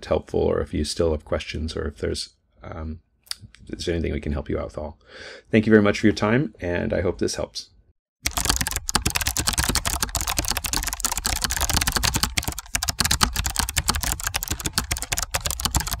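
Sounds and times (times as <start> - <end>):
rapid sharp clicks: 8.2 - 16.0.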